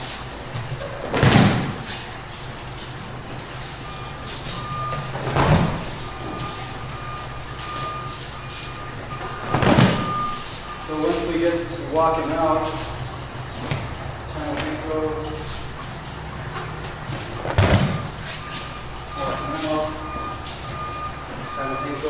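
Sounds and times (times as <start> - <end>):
steady low hum: 0.0 - 22.0
faint high beeping tone: 5.9 - 12.7, 17.9 - 22.0
dull thumps on padded mat: 17.4 - 18.1.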